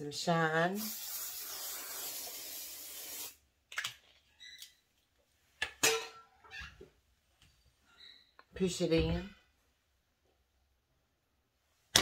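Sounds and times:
aerosol spray hissing: 0.8s - 3.4s.

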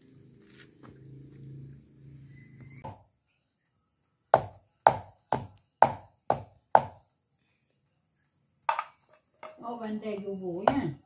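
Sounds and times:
pestle pounding on wooden board: 4.4s - 7.0s.

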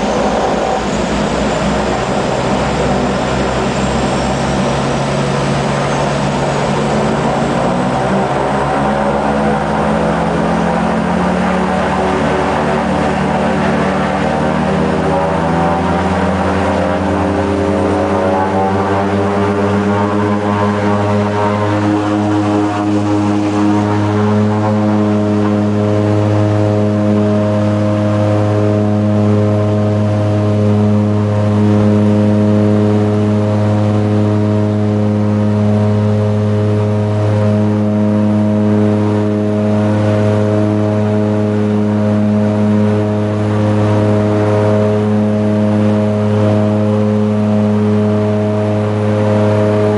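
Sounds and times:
propeller engines drone: 0.0s - 49.9s.

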